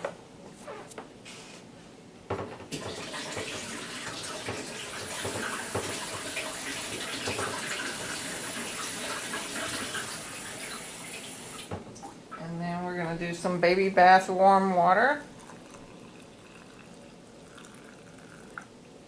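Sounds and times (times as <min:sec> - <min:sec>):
water running from tap: 0:02.7 - 0:11.8, 0:15.4 - 0:18.6.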